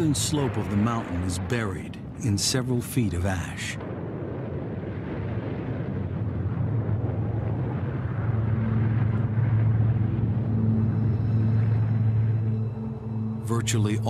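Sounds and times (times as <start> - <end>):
volcano rumble: 0.0 - 14.0
low drone tone: 5.8 - 14.0.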